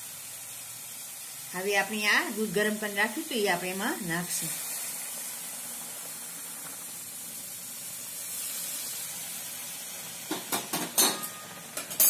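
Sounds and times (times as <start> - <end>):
milk sizzling in hot pan: 0.0 - 12.0.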